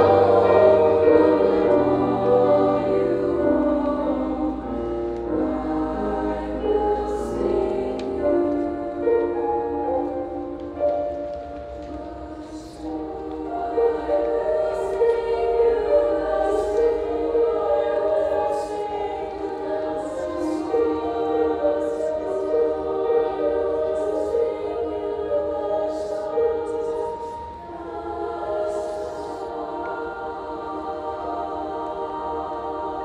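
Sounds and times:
choir singing held chords: 0:00.0 - 0:33.0.

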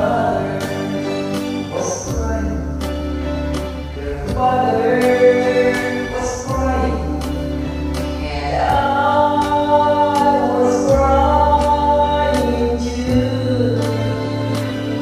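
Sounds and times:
backing track with beat and bass: 0:00.0 - 0:15.0
person singing karaoke: 0:00.0 - 0:15.0.

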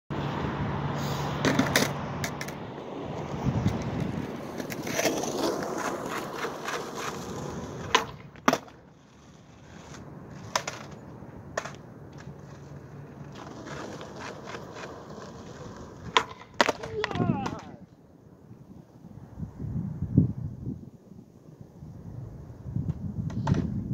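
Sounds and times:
skateboard wheels rolling on asphalt: 0:00.1 - 0:23.9
skateboard clacking on pavement: 0:01.4 - 0:18.0, 0:22.8 - 0:23.8
skateboard knocks: 0:10.4 - 0:17.8, 0:22.9 - 0:23.8.

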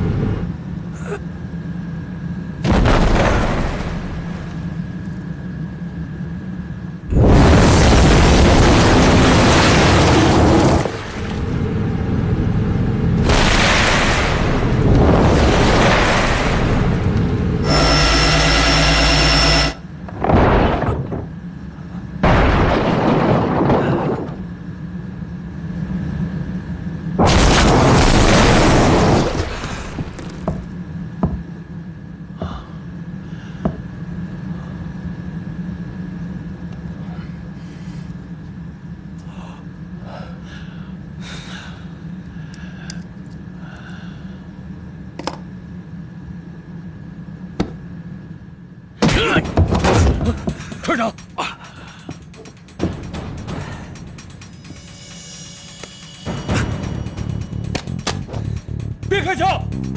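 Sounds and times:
low hum with high tone: 0:00.0 - 0:59.9
ship hull crashing into reef: 0:02.6 - 0:04.5, 0:07.1 - 0:11.6, 0:13.2 - 0:17.1, 0:20.2 - 0:21.3, 0:22.2 - 0:24.4, 0:27.2 - 0:30.3.

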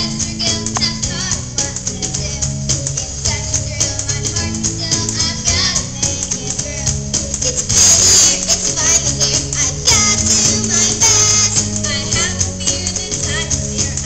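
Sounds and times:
bass line: 0:00.0 - 0:14.0
rattling percussion: 0:00.0 - 0:14.0
children's choir singing: 0:07.7 - 0:14.0.

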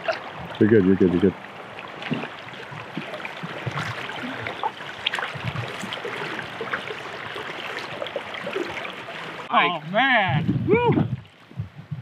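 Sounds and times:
small water splashes: 0:00.0 - 0:09.5
river current flowing and lapping: 0:00.0 - 0:10.2, 0:11.0 - 0:11.7.

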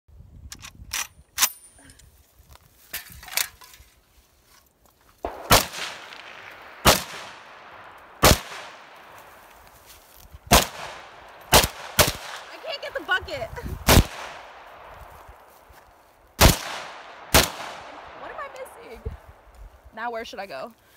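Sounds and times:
rifle shots with echo: 0:05.2 - 0:09.4, 0:10.5 - 0:12.9, 0:13.8 - 0:15.1, 0:16.4 - 0:19.3.

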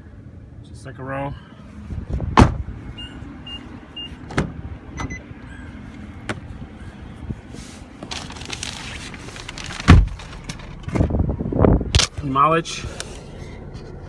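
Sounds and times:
heavy thump: 0:02.1 - 0:02.7.

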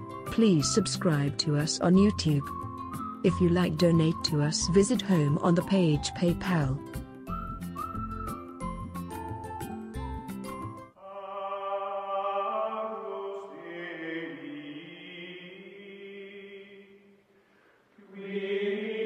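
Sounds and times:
voices singing chant-like chord: 0:11.0 - 0:17.1, 0:18.0 - 0:19.0.

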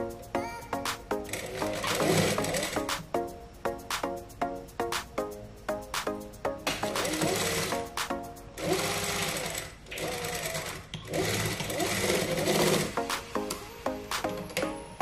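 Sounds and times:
sewing machine running: 0:01.3 - 0:02.8, 0:07.0 - 0:07.7, 0:08.6 - 0:13.0.

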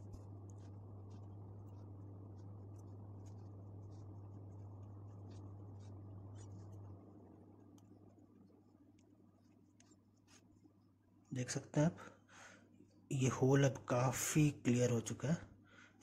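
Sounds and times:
low hum: 0:00.0 - 0:11.4.

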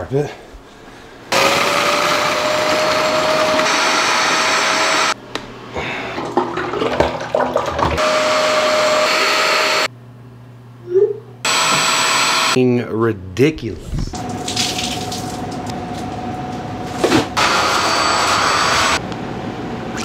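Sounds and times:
suction motor whining: 0:01.3 - 0:05.2, 0:08.0 - 0:09.9, 0:11.4 - 0:12.6, 0:17.4 - 0:19.0.

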